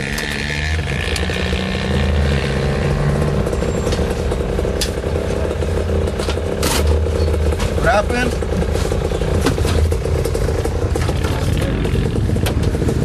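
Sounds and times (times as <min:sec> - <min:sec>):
truck engines running rough: 0:00.0 - 0:13.0.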